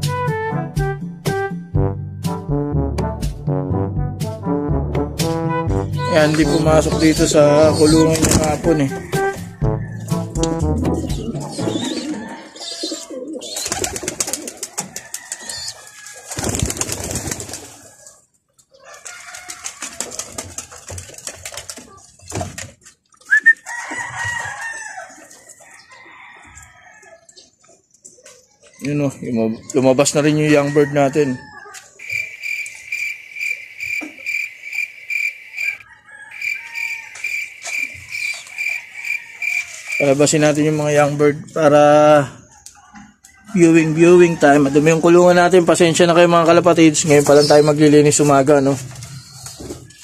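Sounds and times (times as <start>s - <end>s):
pigeons cooing: 6.1s - 9.4s, 11.0s - 18.1s
insect chirping: 32.0s - 40.1s.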